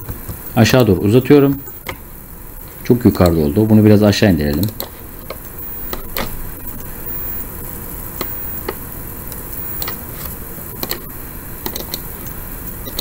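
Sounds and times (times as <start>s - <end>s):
microphone hiss: 0.0s - 13.0s
computer mouse clicking: 4.5s - 6.9s, 8.2s - 12.1s.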